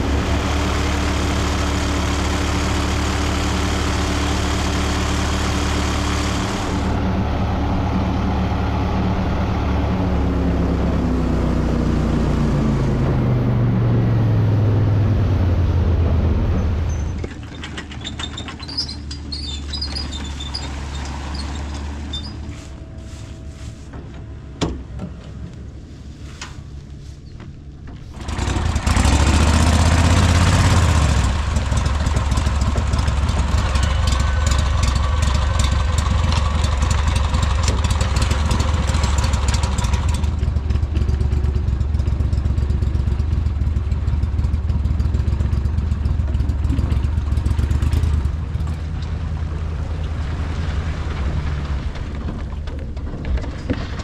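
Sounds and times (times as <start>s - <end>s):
boat motor droning: 0.0s - 17.1s, 27.9s - 53.5s
boat wake splashing: 46.6s - 52.8s.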